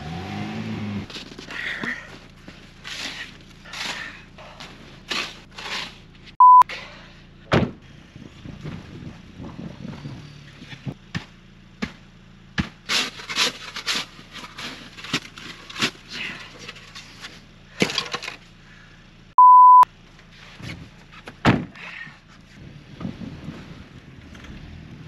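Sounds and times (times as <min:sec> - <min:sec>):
plastic shovel scraping snow: 0:05.1 - 0:06.0
steady beep tone: 0:06.4 - 0:06.6, 0:19.4 - 0:19.8.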